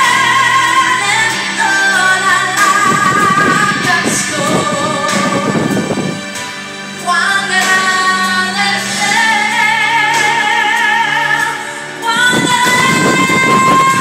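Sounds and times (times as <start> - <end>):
steady musical accompaniment: 0.0 - 14.0
woman singing with vibrato: 0.0 - 14.0.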